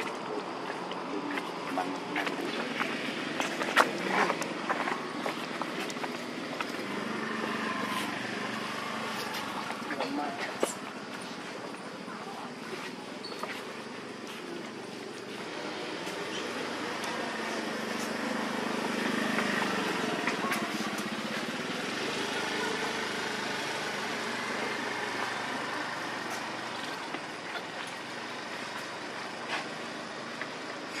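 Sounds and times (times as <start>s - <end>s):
outdoor background noise: 0.0s - 31.0s
motor engine running: 15.3s - 30.8s.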